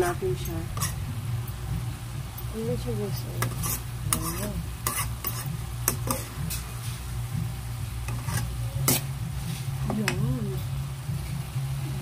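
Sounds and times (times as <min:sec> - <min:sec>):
steady low hum: 0:00.0 - 0:12.0
spatula scraping frying pan: 0:00.7 - 0:01.1, 0:03.3 - 0:07.2, 0:08.0 - 0:10.2.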